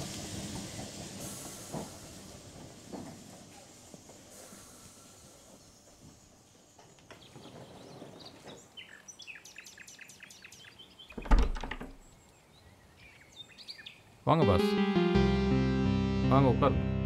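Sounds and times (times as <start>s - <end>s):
birds chirping: 5.0s - 14.5s
wooden door thunk: 11.2s - 12.0s.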